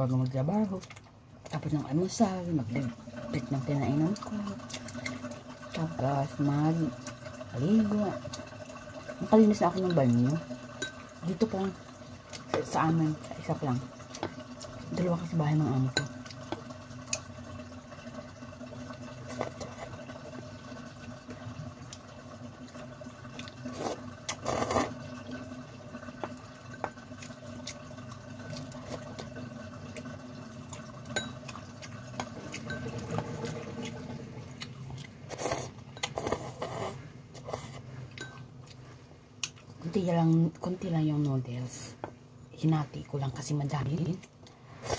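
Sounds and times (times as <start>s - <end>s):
noodles being chewed and slurped: 16.0s - 41.4s.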